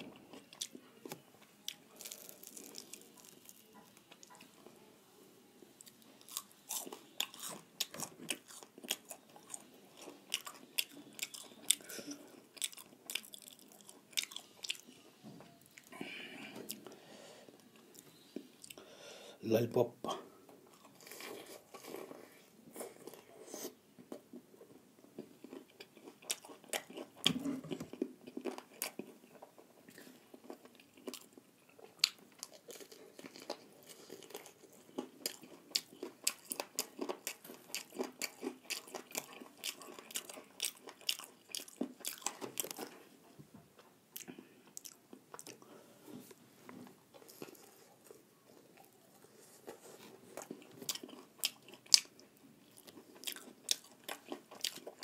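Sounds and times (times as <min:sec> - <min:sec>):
person chewing crunchy food: 0:00.0 - 0:04.6, 0:05.8 - 0:15.0, 0:20.7 - 0:43.3, 0:44.2 - 0:46.4, 0:47.1 - 0:55.0.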